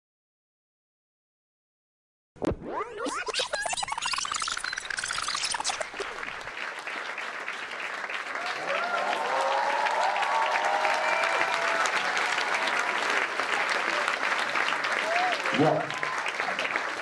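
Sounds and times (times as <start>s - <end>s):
audience applauding: 4.3s - 17.0s
people cheering: 4.5s - 17.0s.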